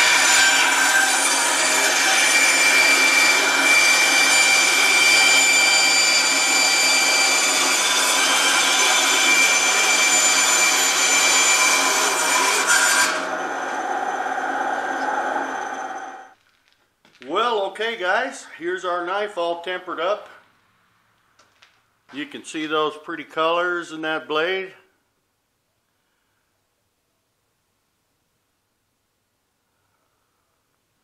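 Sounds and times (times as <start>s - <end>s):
bandsaw cutting: 0.0s - 15.8s.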